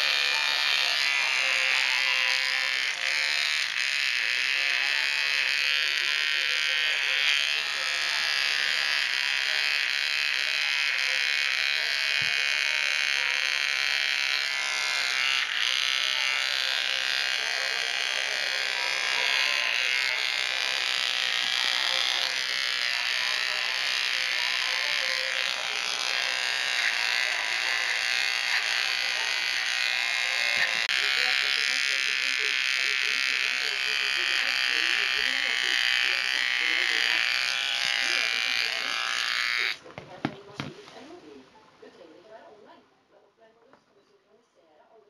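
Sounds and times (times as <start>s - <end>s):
pet trimmer buzzing: 0.0s - 40.7s.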